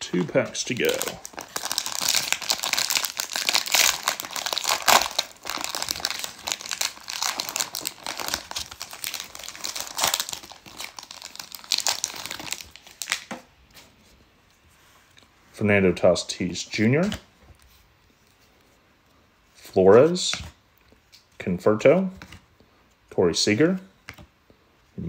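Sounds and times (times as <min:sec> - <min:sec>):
card pack wrapper crinkling and tearing: 0:00.1 - 0:13.3.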